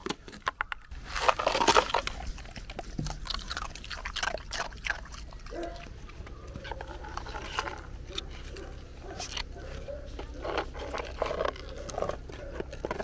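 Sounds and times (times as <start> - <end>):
ice cracking: 0.0 - 5.2
dogs crunching ice: 0.0 - 13.0.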